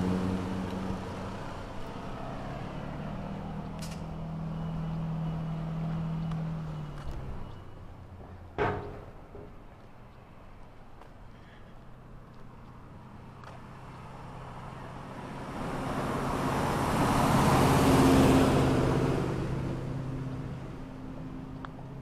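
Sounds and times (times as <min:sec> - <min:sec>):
vehicle driving past: 0:00.0 - 0:08.3, 0:12.9 - 0:21.6.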